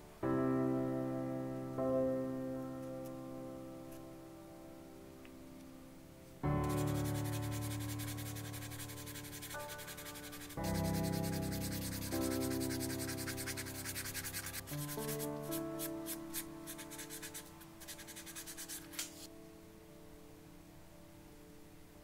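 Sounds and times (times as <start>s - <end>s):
background music with chords: 0.0s - 22.0s
sandpaper rasping on plastic: 6.7s - 16.2s.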